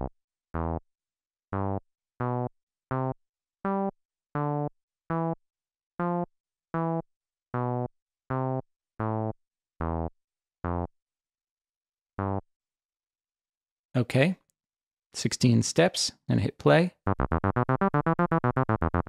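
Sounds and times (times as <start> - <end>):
low synthesizer bass notes: 0.0 - 0.8, 1.6 - 3.1, 7.6 - 10.9, 12.2 - 12.4, 17.1 - 19.0.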